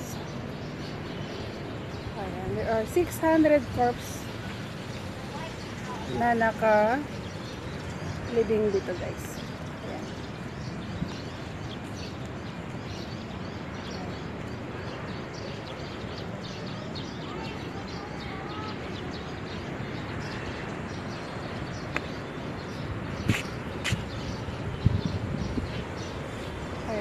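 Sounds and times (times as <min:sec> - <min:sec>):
birds chirping and whistling: 0:19.9 - 0:27.0.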